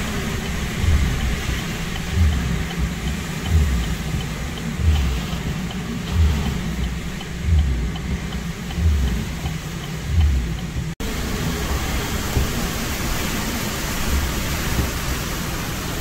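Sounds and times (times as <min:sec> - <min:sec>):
vehicle noise: 0:00.0 - 0:16.0
wind and rain rushing: 0:00.0 - 0:16.0.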